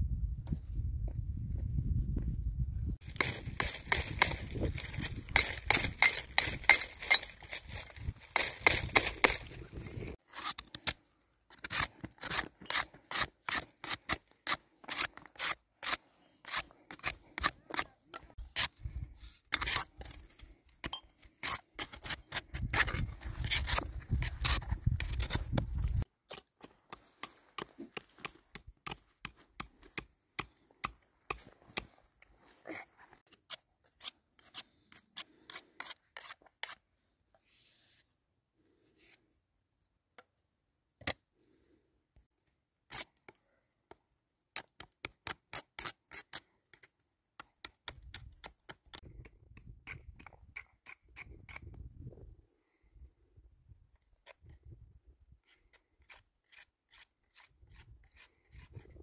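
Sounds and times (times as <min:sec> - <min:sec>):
sharp cutting or scraping strokes: 0:03.0 - 0:20.4, 0:21.4 - 0:26.0, 0:33.2 - 0:36.8, 0:55.4 - 0:59.0.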